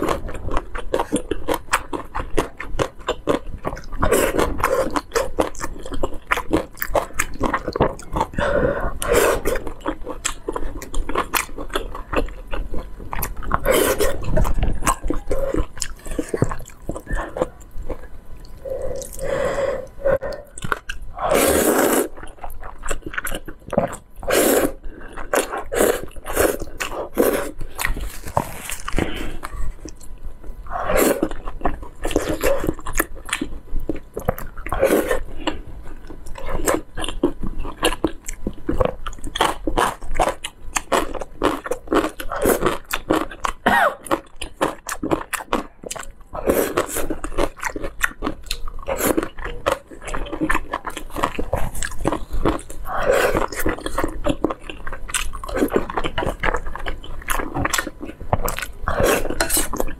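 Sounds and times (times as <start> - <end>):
slurping noodles: 21.2 - 22.2, 24.2 - 29.5.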